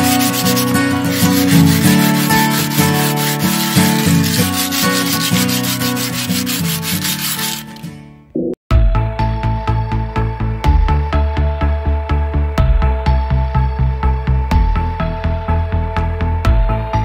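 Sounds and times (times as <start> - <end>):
sandpaper rubbing on steel: 0.0 - 7.9.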